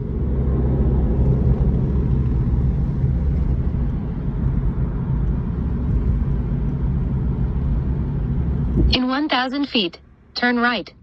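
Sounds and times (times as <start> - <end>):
car engine and tyres rumbling: 0.0 - 11.0
steady hum: 0.0 - 11.0.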